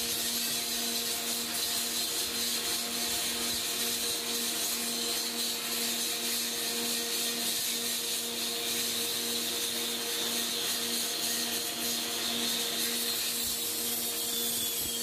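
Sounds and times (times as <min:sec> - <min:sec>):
power grinder running: 0:00.0 - 0:15.0.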